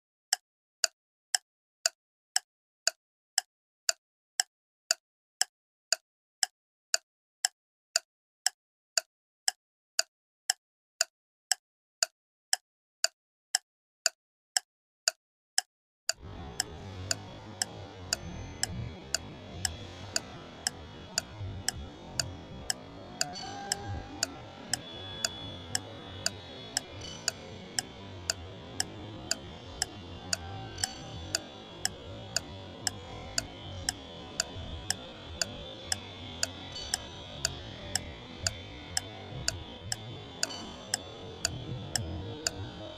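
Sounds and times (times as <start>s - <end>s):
clock ticking: 16.1s - 42.9s.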